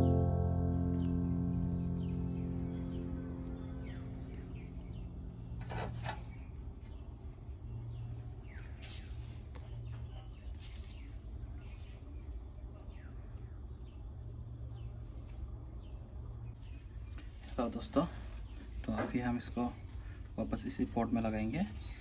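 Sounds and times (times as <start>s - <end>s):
low steady hum: 0.0s - 10.1s
bird chirping: 0.0s - 17.4s.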